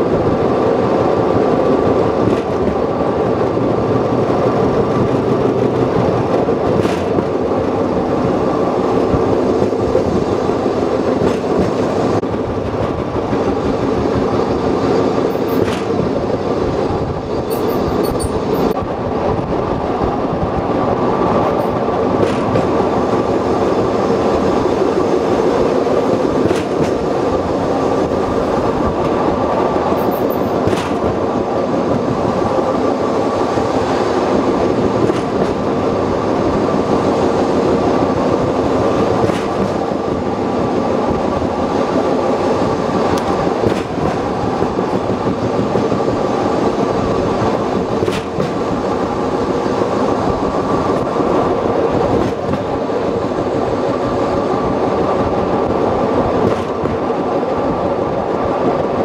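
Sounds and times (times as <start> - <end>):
train wheels rumbling on rails: 0.0 - 59.0
faint clack of rail joints: 2.1 - 3.0, 4.8 - 8.4, 11.0 - 13.5, 14.1 - 18.9, 21.3 - 23.0, 25.6 - 32.2, 34.6 - 36.0, 39.0 - 40.3, 43.0 - 46.6, 47.3 - 49.0, 52.0 - 52.9, 56.3 - 57.2.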